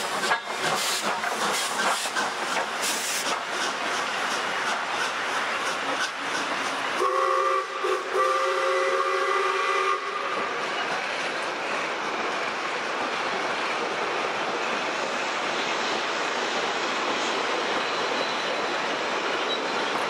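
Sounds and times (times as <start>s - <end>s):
train carriages rolling on track: 0.0s - 20.0s
steam locomotive whistle: 7.0s - 10.5s.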